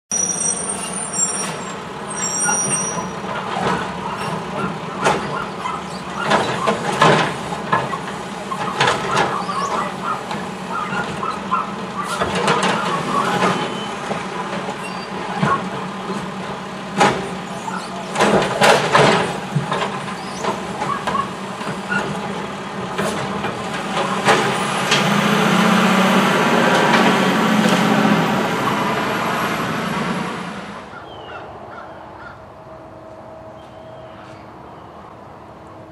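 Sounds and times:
garbage truck diesel engine: 0:00.1 - 0:31.0
garbage carts clattering and banging: 0:02.9 - 0:28.2.

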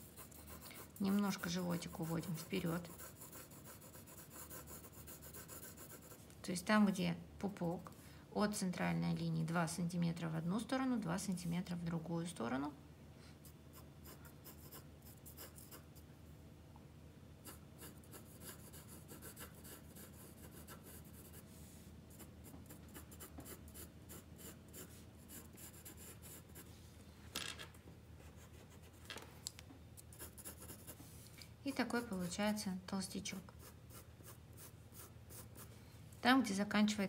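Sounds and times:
pencil scratching on paper: 0:00.0 - 0:06.3, 0:13.4 - 0:15.9, 0:17.4 - 0:21.4, 0:22.1 - 0:26.7, 0:30.1 - 0:31.0, 0:31.7 - 0:32.6, 0:33.5 - 0:35.7.

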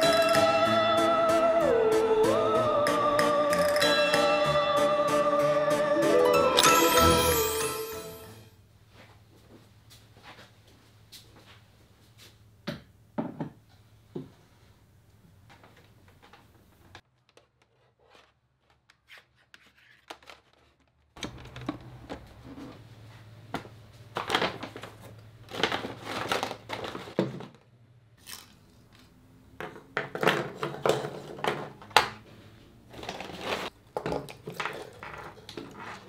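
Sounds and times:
paper bag rustling: 0:23.8 - 0:27.2, 0:32.9 - 0:33.8.

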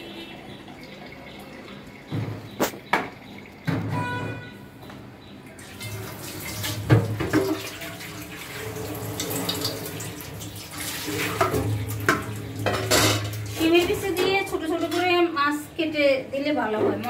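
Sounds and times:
water splashing into plastic tub: 0:00.1 - 0:04.4, 0:05.6 - 0:15.0
tap running into steel sink: 0:02.1 - 0:04.1, 0:06.6 - 0:07.7, 0:11.2 - 0:14.5
tub knocking against sink: 0:02.1 - 0:04.5, 0:06.7 - 0:07.8, 0:11.2 - 0:14.5.

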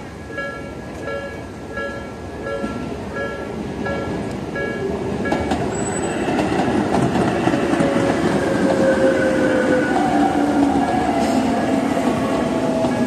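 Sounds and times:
electric train passing: 0:00.0 - 0:13.0
level crossing warning bell: 0:00.2 - 0:05.6
wheels clattering on rails: 0:03.9 - 0:09.2
train wheels squealing: 0:05.3 - 0:06.4.

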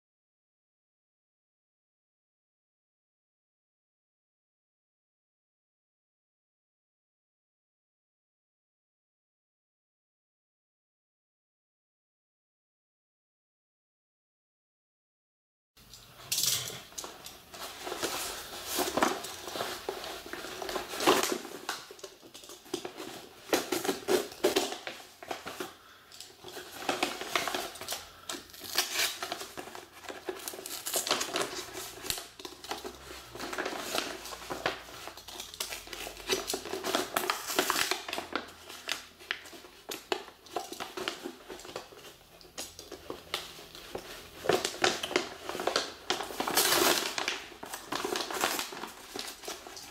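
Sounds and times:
packaging crinkling and rustling: 0:15.9 - 0:49.9.

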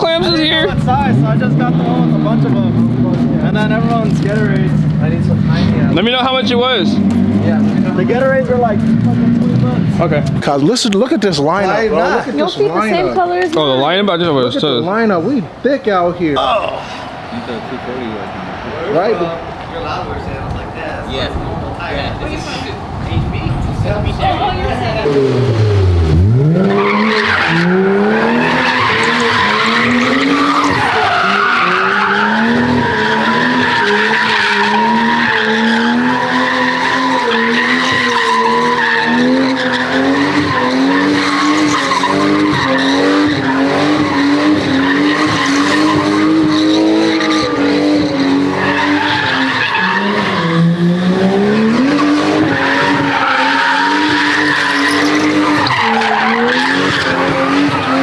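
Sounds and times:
car engine revving: 0:00.0 - 0:58.0
tyre squeal: 0:26.6 - 0:50.7, 0:51.9 - 0:58.0.

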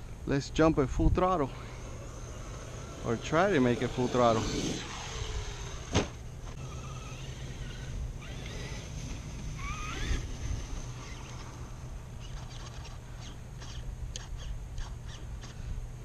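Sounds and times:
electric motor whine: 0:01.2 - 0:14.5
toy truck landing thump: 0:05.8 - 0:06.2.

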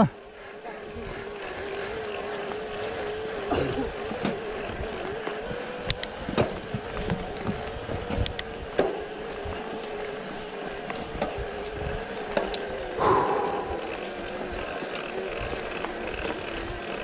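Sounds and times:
bike rattling on rough dirt: 0:00.0 - 0:17.0
electric bike motor whining: 0:00.0 - 0:17.0.

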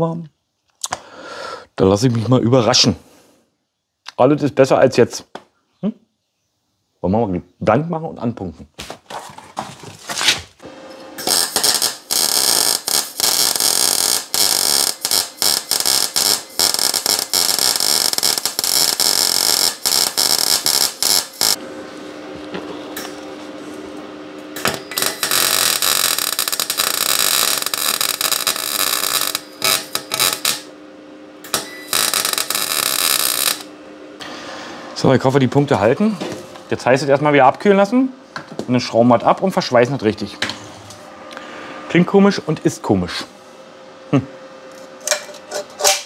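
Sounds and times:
arc welding crackling hiss: 0:11.2 - 0:21.6, 0:24.6 - 0:30.8, 0:31.4 - 0:33.8.

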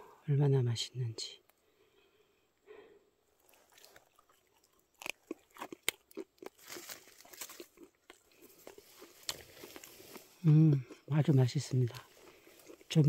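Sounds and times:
person chewing mushroom crunchily: 0:03.4 - 0:13.0.

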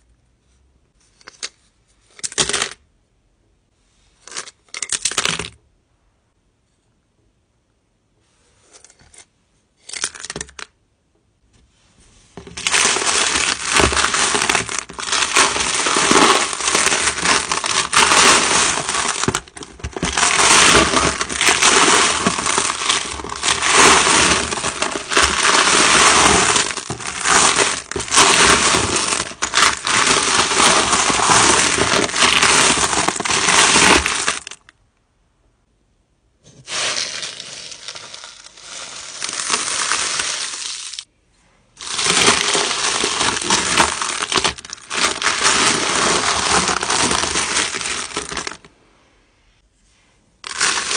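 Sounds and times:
stones clattering in plastic bin: 0:12.4 - 0:34.6, 0:41.8 - 0:48.7, 0:50.4 - 0:50.9.

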